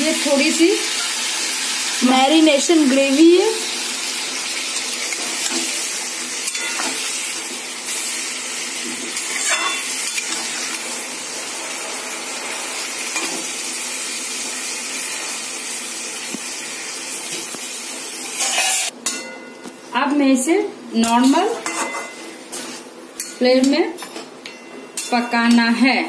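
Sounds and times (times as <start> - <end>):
chicken sizzling in hot oil: 0.0 - 18.9.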